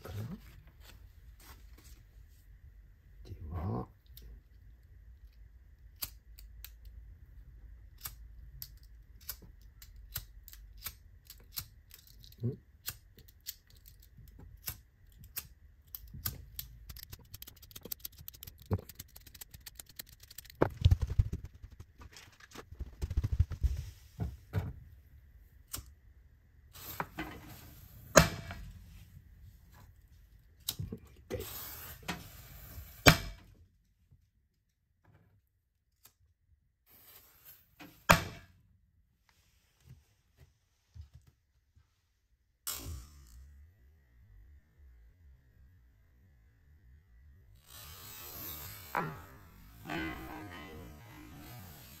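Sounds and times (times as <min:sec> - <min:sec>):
small clicks and clatter of handling: 0:08.0 - 0:22.6.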